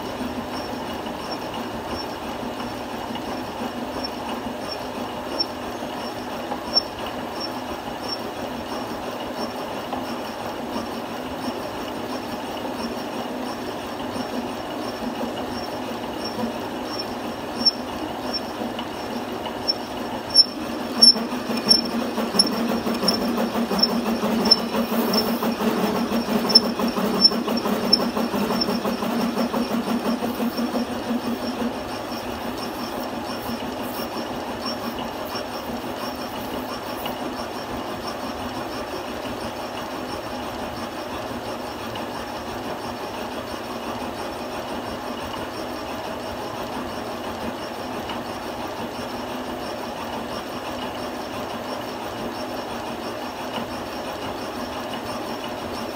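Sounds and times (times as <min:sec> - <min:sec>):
metal lathe cutting: 0:12.8 - 0:37.2
light regular ticking: 0:16.2 - 0:31.6.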